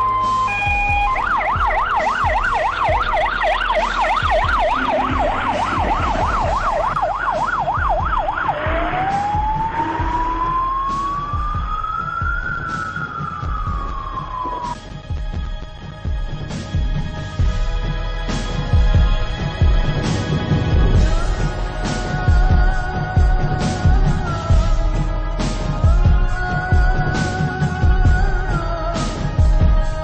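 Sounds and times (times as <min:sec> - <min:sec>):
fire engine siren: 0:00.0 - 0:14.8.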